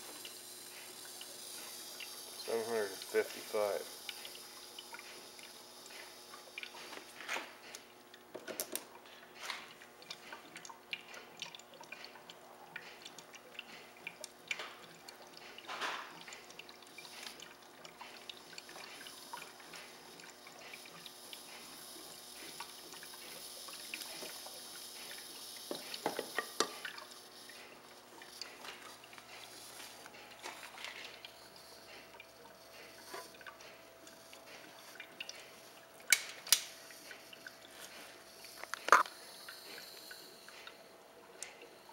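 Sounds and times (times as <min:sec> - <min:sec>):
water bubbling and dripping: 0:00.1 - 0:41.9
small clicks and pops: 0:38.5 - 0:39.2.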